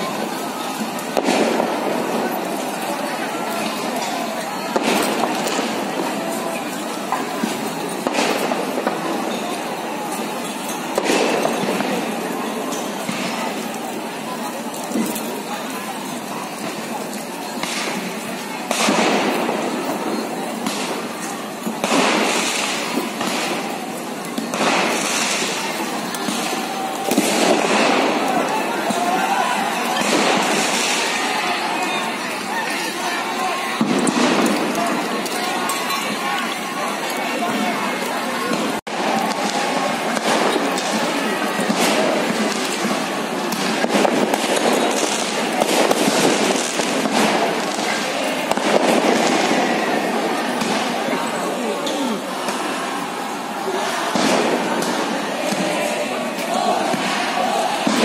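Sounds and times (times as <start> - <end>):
constant noisy din: 0.0 - 58.0
firecrackers cracking and popping: 0.0 - 58.0
loud explosive bangs with echo: 1.1 - 2.8, 4.0 - 9.5, 18.7 - 32.5, 33.2 - 36.0, 38.5 - 51.3, 53.8 - 58.0.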